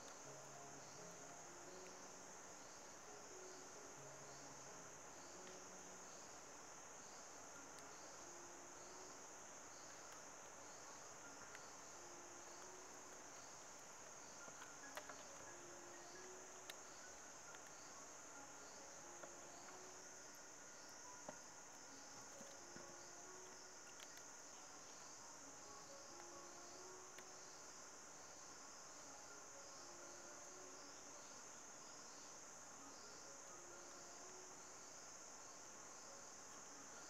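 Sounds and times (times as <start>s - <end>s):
insect chorus: 0.0s - 37.0s
bamboo clicks: 12.6s - 15.6s, 16.5s - 17.8s, 21.2s - 25.0s.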